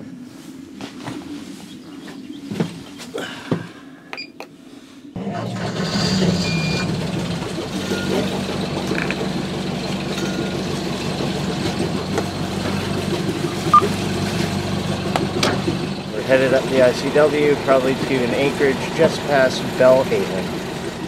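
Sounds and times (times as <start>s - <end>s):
boat engine starting and idling: 5.2s - 21.0s.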